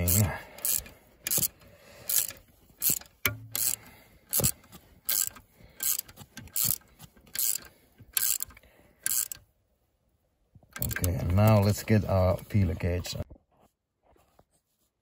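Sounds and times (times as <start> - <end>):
socket ratchet clicking: 0.0 - 9.5, 10.7 - 11.6.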